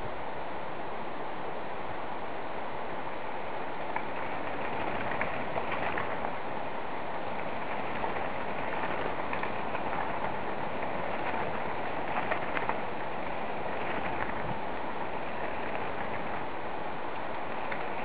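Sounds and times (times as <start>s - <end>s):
steady rushing noise: 0.0s - 18.0s
bike tyres crunching on gravel: 7.2s - 18.0s.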